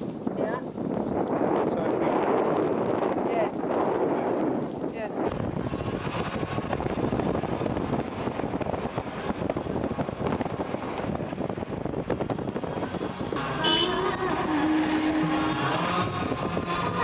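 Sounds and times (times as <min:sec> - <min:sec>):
wind through open window: 0:00.0 - 0:13.4
car driving on dirt road: 0:00.0 - 0:17.0.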